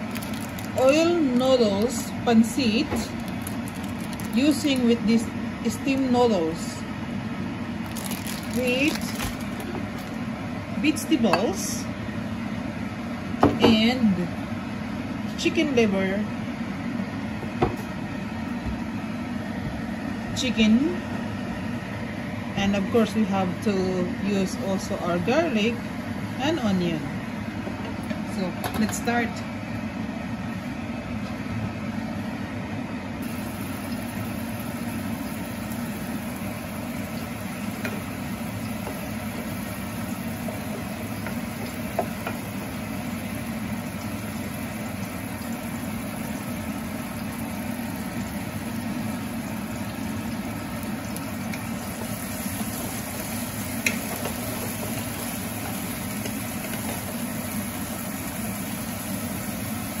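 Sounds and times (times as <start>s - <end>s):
onion and garlic sizzling in oil: 0.0s - 11.8s, 33.2s - 60.0s.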